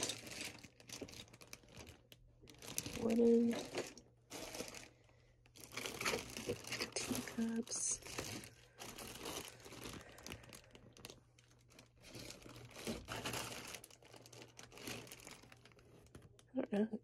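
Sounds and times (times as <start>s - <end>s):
plastic bags crinkling: 0.0s - 16.6s.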